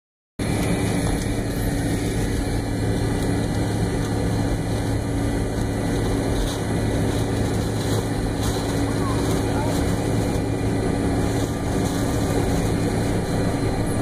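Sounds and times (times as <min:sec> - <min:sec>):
jet engines humming: 0:00.4 - 0:14.0
cabin noise rush: 0:01.4 - 0:14.0.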